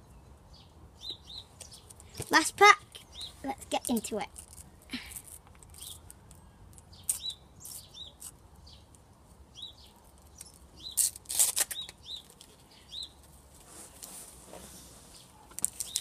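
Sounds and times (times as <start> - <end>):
foil wrapper crinkling and tearing: 10.3 - 12.5.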